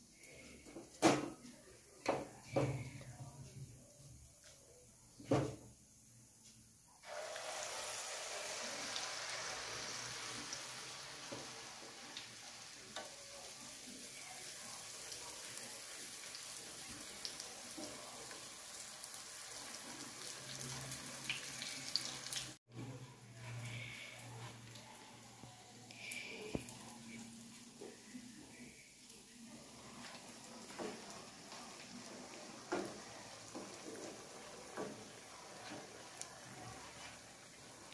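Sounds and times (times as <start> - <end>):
batter sizzling in hot oil: 7.0 - 22.6, 23.6 - 37.9.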